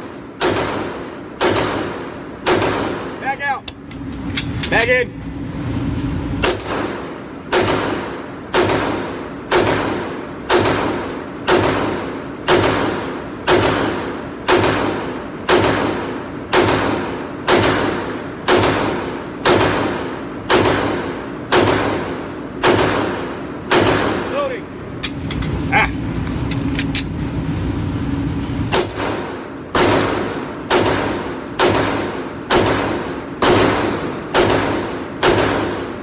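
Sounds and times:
pistol shots echoing indoors: 0:00.0 - 0:03.4, 0:06.4 - 0:24.5, 0:28.7 - 0:36.0.

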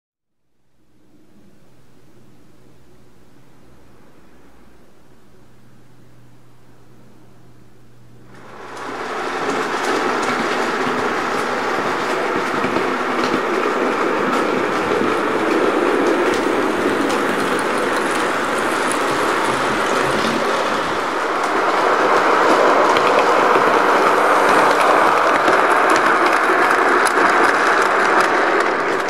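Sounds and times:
model train wheels rattling: 0:08.3 - 0:29.0
track clicks: 0:08.3 - 0:29.0.

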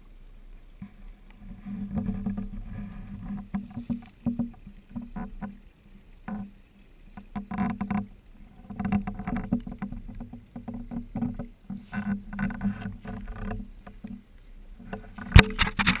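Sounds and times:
camera pole rubbing and knocking: 0:01.5 - 0:05.5, 0:08.7 - 0:14.2, 0:14.8 - 0:16.0.

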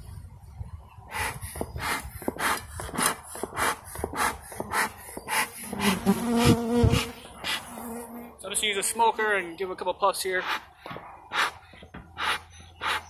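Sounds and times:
bellows puffing air: 0:01.1 - 0:08.0, 0:10.4 - 0:13.0
bee buzzing: 0:01.1 - 0:09.2.

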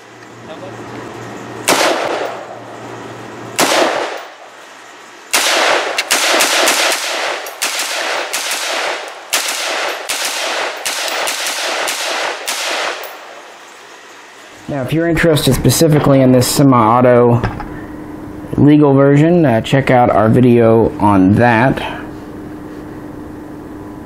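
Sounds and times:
rifle shots: 0:01.6 - 0:02.6, 0:03.6 - 0:04.4, 0:05.3 - 0:13.6.

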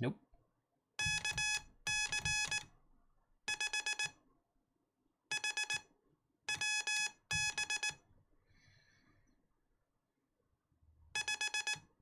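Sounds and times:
morse code beeping: 0:01.0 - 0:02.6, 0:06.5 - 0:08.0, 0:11.2 - 0:11.8.

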